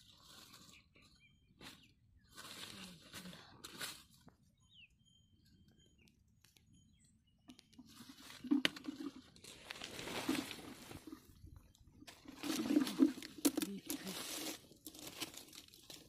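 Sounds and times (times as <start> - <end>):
faint bird chirps: 0.2 - 3.6, 4.4 - 8.5.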